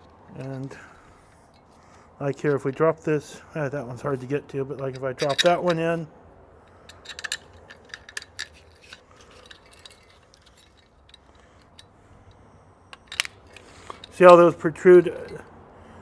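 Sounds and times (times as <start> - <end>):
screws clinking on metal: 4.0 - 6.1, 6.7 - 15.5.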